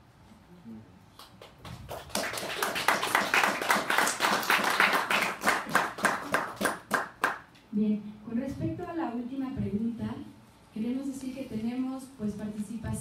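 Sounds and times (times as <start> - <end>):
audience applause: 1.8 - 7.4.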